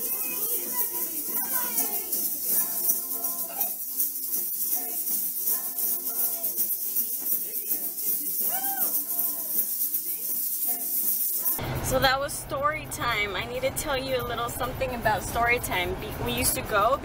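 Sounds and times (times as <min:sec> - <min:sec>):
plastic egg shakers rattling: 0:00.0 - 0:11.6
children's song singing: 0:00.0 - 0:15.6.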